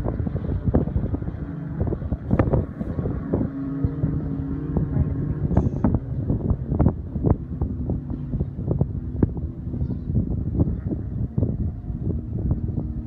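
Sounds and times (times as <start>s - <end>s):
distant jet ski engines: 0.0s - 13.0s
wind buffeting microphone: 0.0s - 13.0s.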